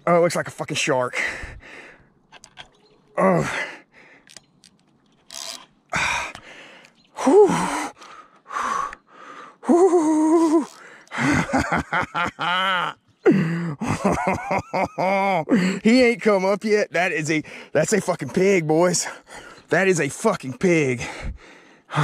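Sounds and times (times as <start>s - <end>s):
man gasping and groaning: 1.1s - 2.0s, 3.2s - 4.2s, 5.9s - 11.5s, 12.7s - 14.0s, 15.4s - 15.9s, 20.9s - 22.0s.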